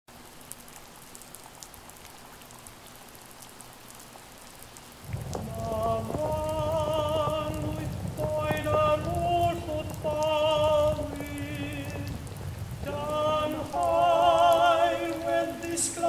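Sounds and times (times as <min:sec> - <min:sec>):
rain pattering: 0:00.1 - 0:16.0
low rumble: 0:05.0 - 0:15.6.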